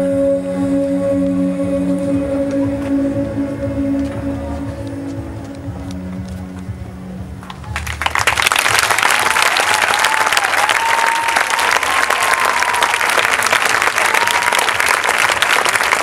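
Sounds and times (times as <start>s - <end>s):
audience applauding: 7.5s - 16.0s.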